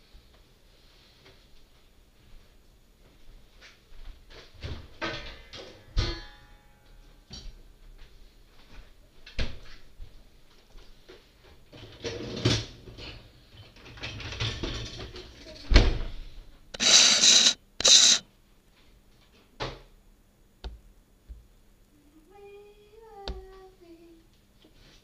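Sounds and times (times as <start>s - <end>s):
loud scraping: 16.7s - 18.2s.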